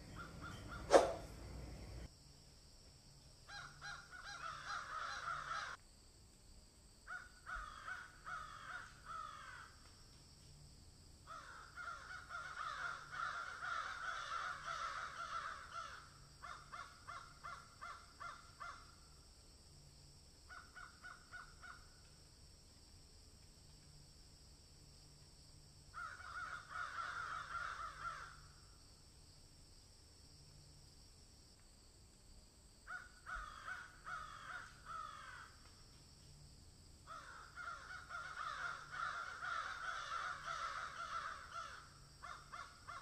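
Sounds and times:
harsh rasping animal calls: 0.0s - 2.0s.

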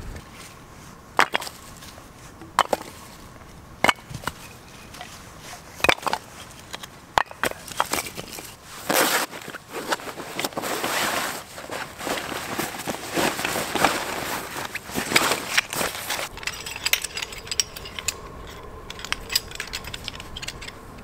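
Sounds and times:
firewood knocking onto log pile: 2.5s - 2.9s
nylon bag rustling: 8.1s - 18.0s.

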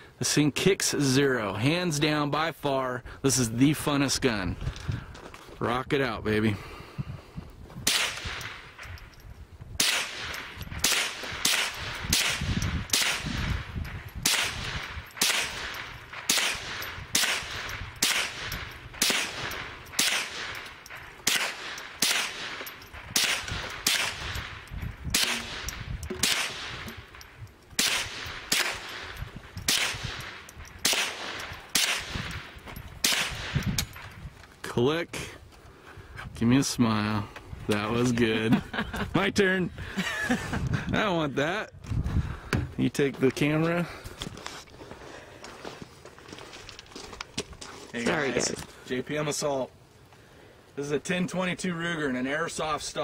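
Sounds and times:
rifle shots with echo: 7.8s - 9.1s, 9.8s - 34.2s.

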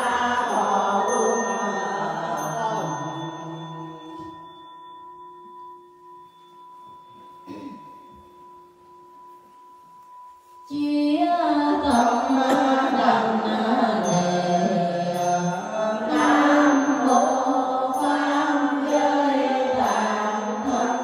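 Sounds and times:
group chanting: 0.0s - 3.1s, 12.3s - 21.0s
bowl bell ringing: 0.0s - 21.0s.

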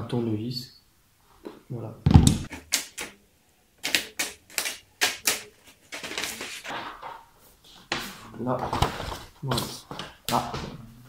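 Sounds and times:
backing paper peeling off grip tape: 3.8s - 6.7s.

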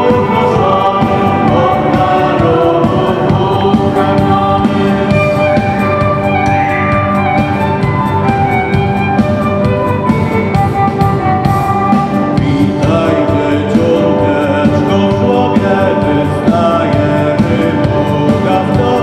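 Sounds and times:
group singing: 0.0s - 6.5s, 12.1s - 19.0s
live band playing: 0.0s - 19.0s.

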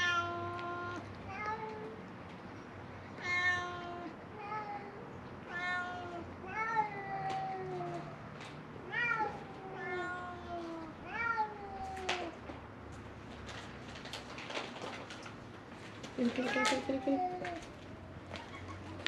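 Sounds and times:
cats meowing: 0.0s - 2.0s, 3.2s - 12.4s, 16.3s - 17.8s.

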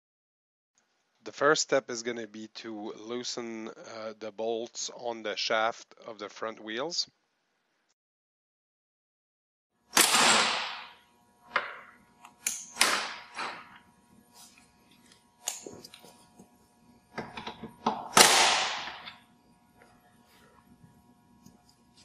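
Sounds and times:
impact wrench hammering: 10.0s - 13.8s, 17.2s - 19.2s.

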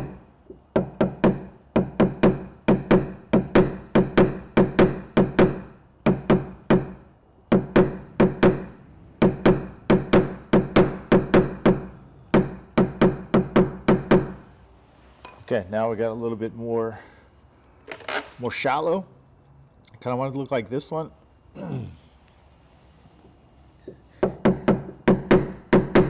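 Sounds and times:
tool tapping metal car panel: 0.0s - 14.4s.

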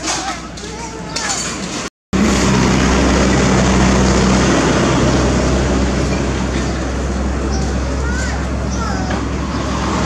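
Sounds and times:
engine running: 2.2s - 10.0s.

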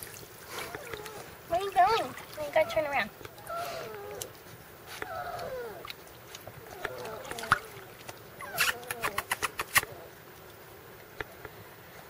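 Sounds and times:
puppy whimpering: 0.5s - 4.3s, 5.0s - 10.2s
sharp clicks: 8.6s - 9.9s.

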